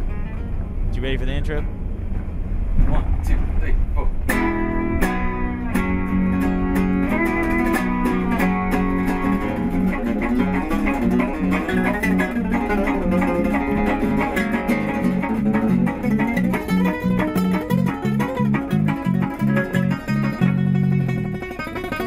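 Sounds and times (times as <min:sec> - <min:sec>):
picked guitar notes: 0:03.8 - 0:22.0
repeating bass line: 0:04.3 - 0:21.9.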